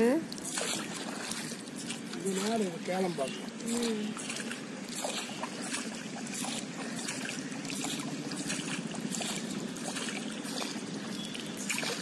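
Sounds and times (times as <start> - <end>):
water splashing along boat hull: 0.0 - 12.0.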